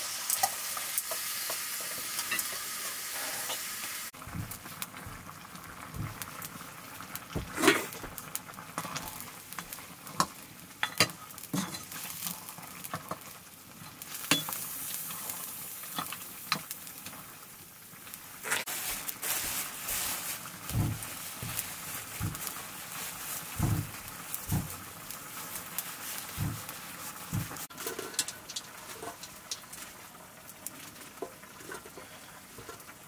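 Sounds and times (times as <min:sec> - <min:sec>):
meat sizzling in a pan: 0:00.0 - 0:33.0
metal ladle scraping pan: 0:27.3 - 0:29.6, 0:31.2 - 0:33.0.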